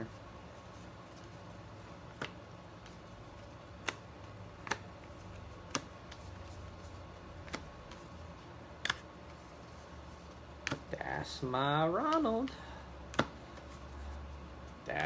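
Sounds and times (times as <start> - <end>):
faint room hum: 0.0 - 15.0
cards clicking as dealt: 2.1 - 2.9, 3.8 - 4.0, 4.6 - 4.9, 5.6 - 6.2, 8.8 - 9.0, 13.1 - 13.7.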